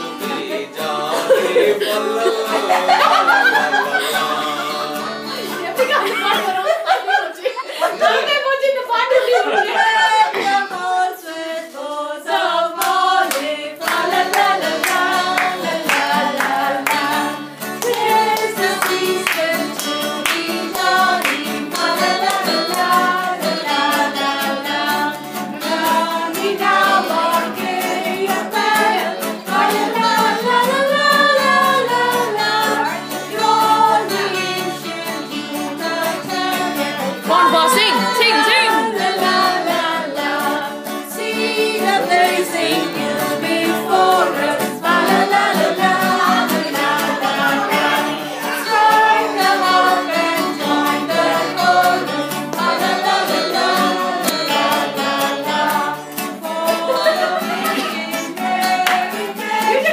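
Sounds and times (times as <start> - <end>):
group singing a carol: 0.0 - 59.9
hands clapping in rhythm: 12.3 - 24.1, 50.6 - 56.8, 57.5 - 59.9.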